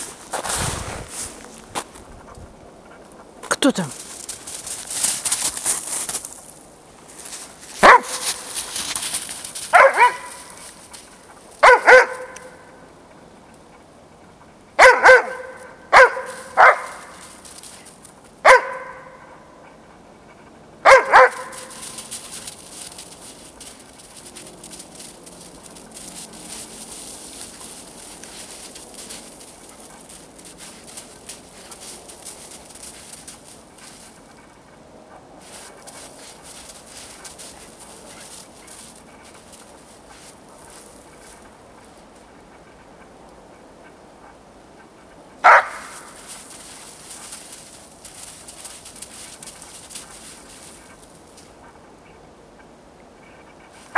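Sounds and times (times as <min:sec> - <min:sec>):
dog barking: 0:07.8 - 0:08.4, 0:09.7 - 0:10.6, 0:11.6 - 0:12.7, 0:14.8 - 0:17.1, 0:18.4 - 0:19.3, 0:20.8 - 0:21.9, 0:45.4 - 0:46.0.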